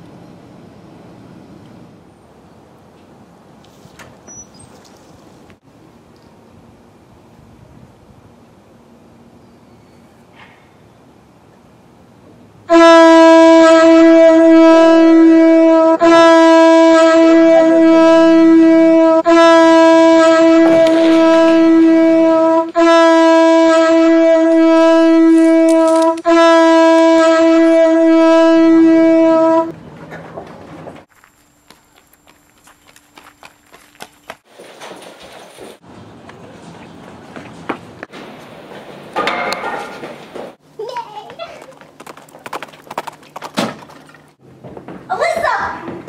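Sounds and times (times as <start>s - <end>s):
loud horn blasts: 12.7s - 29.8s.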